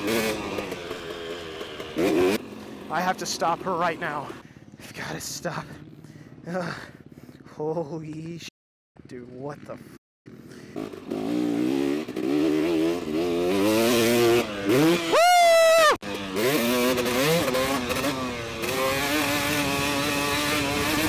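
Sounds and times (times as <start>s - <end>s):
dirt bike engine revving: 0.0s - 7.5s, 9.7s - 21.0s.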